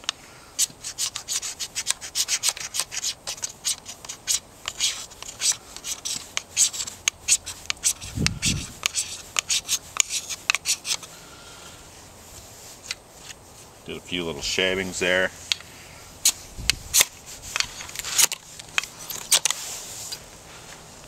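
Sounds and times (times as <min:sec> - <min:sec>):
knife scraping metal rod: 0:00.6 - 0:11.1, 0:16.2 - 0:20.2.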